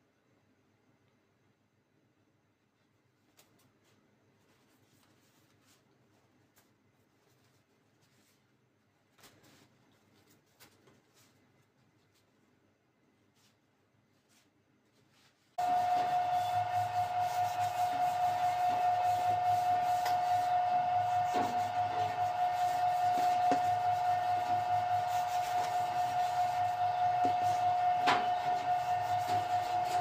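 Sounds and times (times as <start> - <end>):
machine whine with high tone: 15.6 - 30.0.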